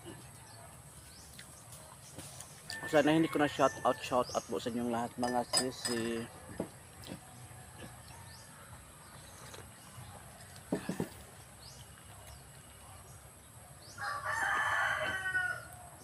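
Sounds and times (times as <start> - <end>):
rooster crowing: 2.7 - 4.3, 14.0 - 15.9.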